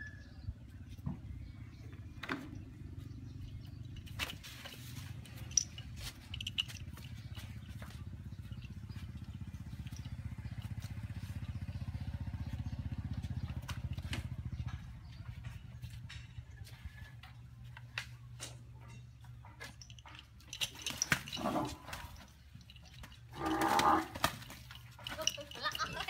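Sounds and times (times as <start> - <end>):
small engine puttering: 1.7 - 16.2, 19.7 - 26.0.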